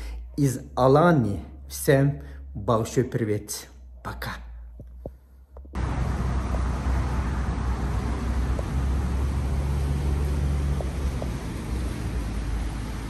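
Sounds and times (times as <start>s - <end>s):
vehicle road rumble: 4.6s - 13.0s.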